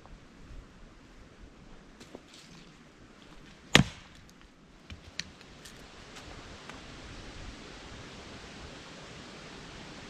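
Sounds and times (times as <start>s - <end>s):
hatchet chopping wood: 3.7s - 4.3s.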